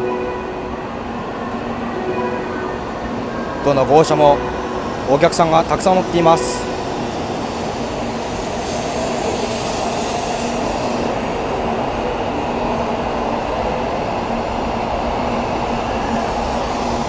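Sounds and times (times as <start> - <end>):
train motors and wheels running: 3.8 - 17.0.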